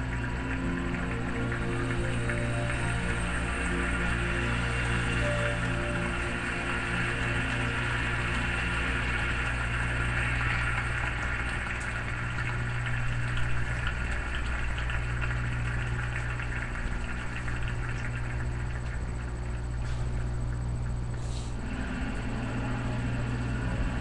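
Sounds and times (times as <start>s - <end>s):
low electrical hum: 0.0s - 24.0s.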